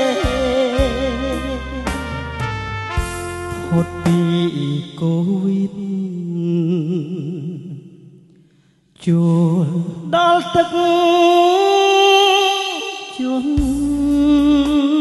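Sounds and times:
man singing a held note: 0.0s - 2.2s, 3.5s - 8.3s, 9.0s - 15.0s
keyboard melody: 0.0s - 5.1s.

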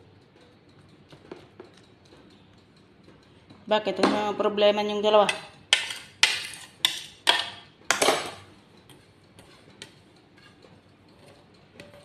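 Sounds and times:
utensils and dishes clattering: 5.2s - 12.0s.

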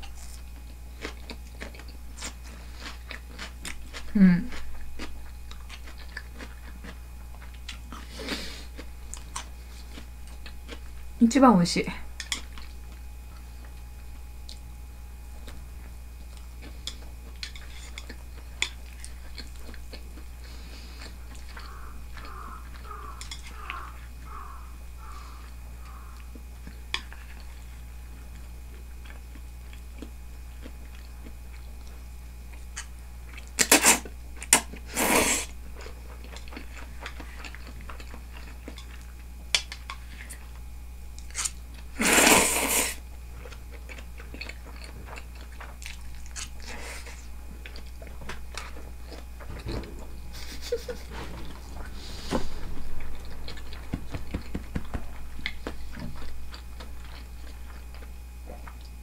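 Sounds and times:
person chewing: 0.0s - 11.1s, 12.2s - 14.7s, 15.4s - 59.0s
person slurping noodles: 34.9s - 35.5s, 42.0s - 43.0s.

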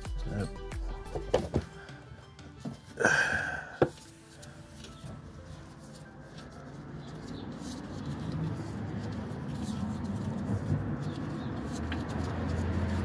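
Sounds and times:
squeaky scrape of hand tool: 4.0s - 13.0s.

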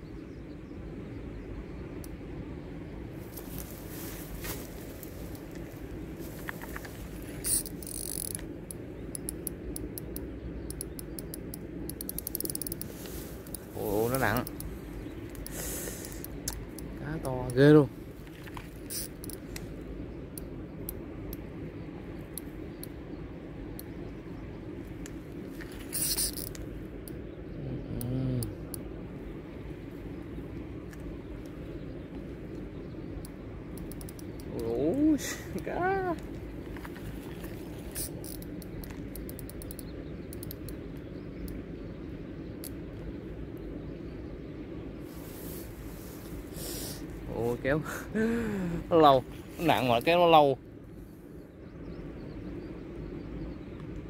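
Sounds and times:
low outdoor rumble: 0.0s - 54.0s
rustling hiss: 1.0s - 10.0s, 10.8s - 54.0s
faint clicks: 4.4s - 21.5s, 30.8s - 34.8s, 35.6s - 41.6s, 42.6s - 43.7s
fishing reel clicking: 7.4s - 14.7s, 18.9s - 19.4s, 25.9s - 26.6s, 33.8s - 34.3s, 37.9s - 40.7s.

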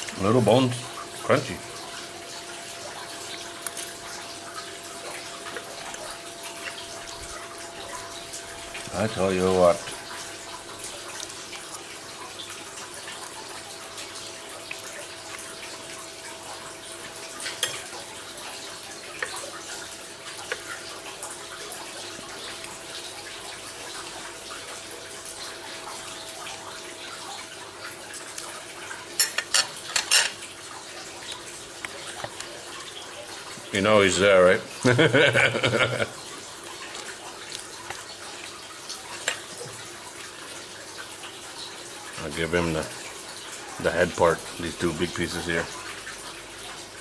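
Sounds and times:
fork clinking on a plate: 29.2s - 30.4s.

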